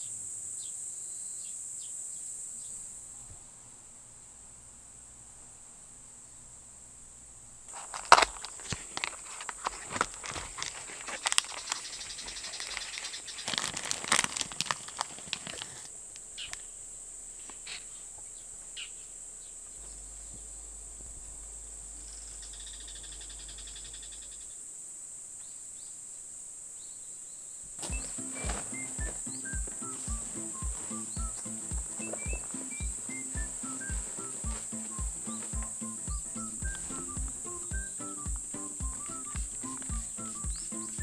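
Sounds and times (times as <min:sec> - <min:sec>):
insect trill: 0:00.0 - 0:04.3, 0:07.7 - 0:41.0
paperboard box crinkling: 0:07.7 - 0:15.9.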